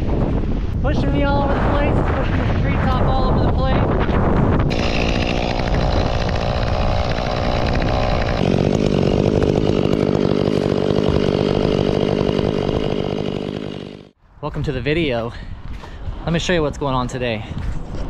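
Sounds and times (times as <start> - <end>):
chainsaw cutting through wood: 4.7 - 14.2.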